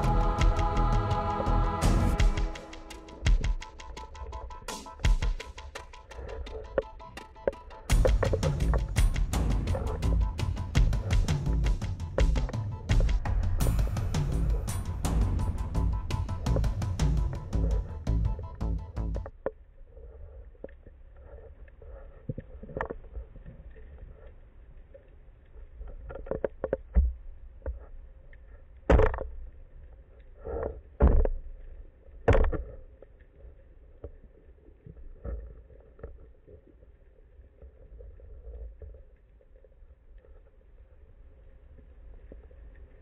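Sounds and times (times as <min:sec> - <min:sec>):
underwater rumble: 0:00.0 - 0:43.0
underwater knocks and thumps: 0:01.8 - 0:19.6, 0:28.8 - 0:29.5, 0:31.0 - 0:31.6, 0:32.2 - 0:32.8.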